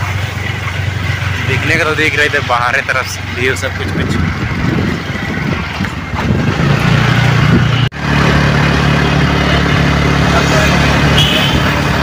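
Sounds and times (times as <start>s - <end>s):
motorcycle engine running: 0.0s - 12.0s
road and wind noise: 0.0s - 12.0s.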